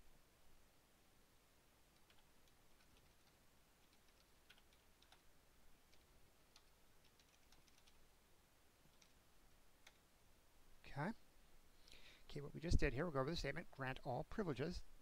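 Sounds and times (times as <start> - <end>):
computer keyboard typing: 2.0 - 5.3, 5.9 - 8.0, 8.9 - 9.2, 9.8 - 10.0.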